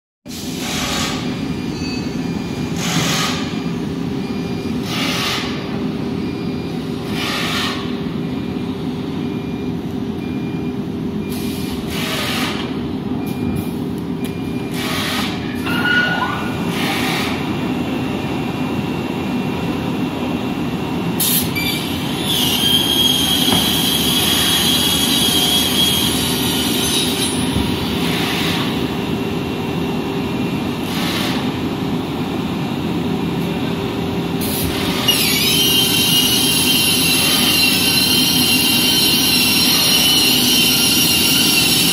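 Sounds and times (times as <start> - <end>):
high-pitched cutting whine: 21.4 - 29.5, 34.9 - 41.9.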